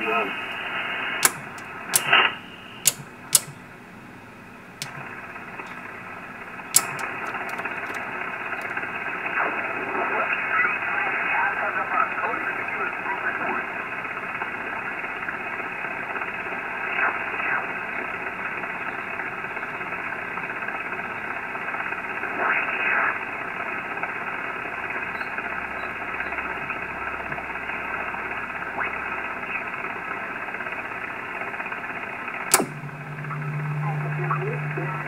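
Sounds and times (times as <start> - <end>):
radio stations passing through: 0.0 - 3.5, 6.8 - 13.9, 26.4 - 29.8, 32.5 - 35.0
radio band noise hiss: 0.0 - 3.6, 4.8 - 35.0
sharp click: 1.2 - 3.6, 4.8 - 5.8, 6.7 - 8.8, 32.5 - 35.0.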